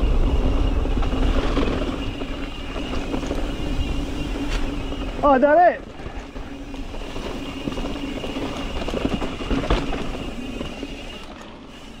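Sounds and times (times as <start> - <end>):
bike tyre and frame rattle: 0.0 - 12.0.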